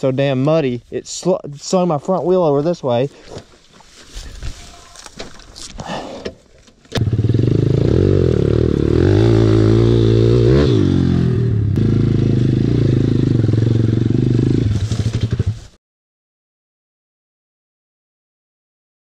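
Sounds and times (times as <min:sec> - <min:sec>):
pit bike engine revving: 0:07.0 - 0:15.7.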